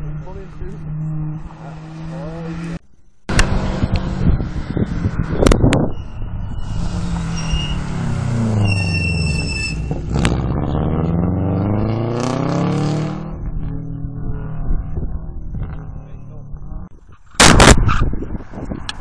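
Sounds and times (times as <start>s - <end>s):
rally car engine revving: 0.0s - 16.9s
sharp crack: 17.4s - 18.0s.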